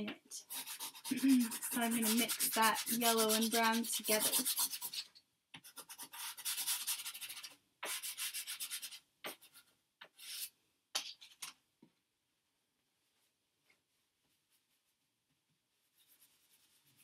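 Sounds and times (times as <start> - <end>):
pastel scratching on paper: 0.4 - 10.5, 15.7 - 17.0.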